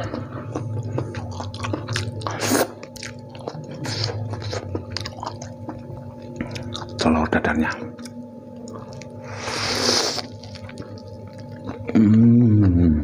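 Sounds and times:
wet chewing: 0.0 - 12.3
noodle slurping: 9.2 - 10.7.

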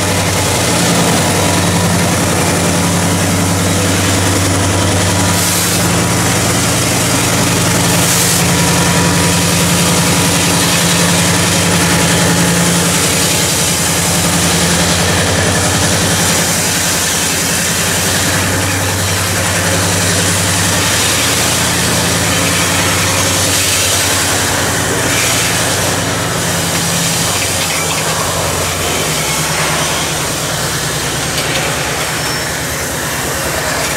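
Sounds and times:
diesel locomotive engines idling: 0.0 - 33.9.

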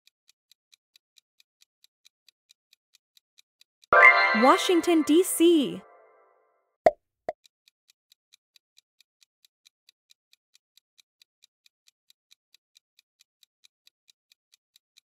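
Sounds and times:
timer ticking: 0.0 - 6.1.

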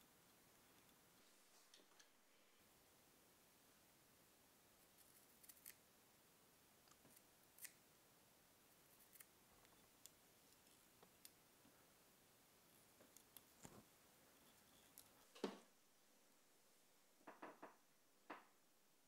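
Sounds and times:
small scissors snipping: 5.0 - 5.8, 6.9 - 7.8.

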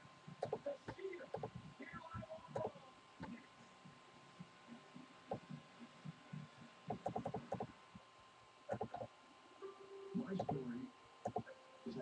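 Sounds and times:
computer keyboard clicking: 6.9 - 7.7
faint steady high tone: 9.6 - 12.0.

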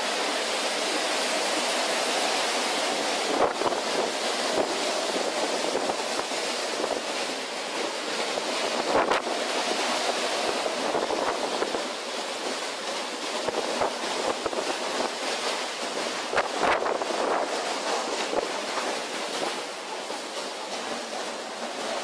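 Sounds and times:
storm waves breaking: 0.0 - 22.0
wind buffeting microphone: 3.0 - 19.7.

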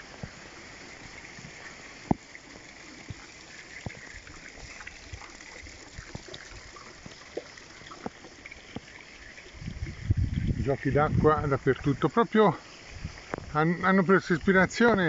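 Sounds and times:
water trickling from fountains: 0.0 - 15.0.

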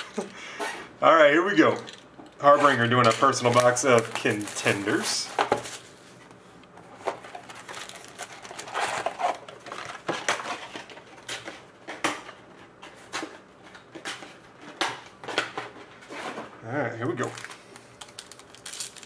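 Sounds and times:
foil packs rustling: 2.4 - 6.2, 6.9 - 12.0, 17.1 - 19.0
plastic shrink-wrap crinkling: 2.6 - 5.9, 7.1 - 11.4, 17.1 - 19.0.

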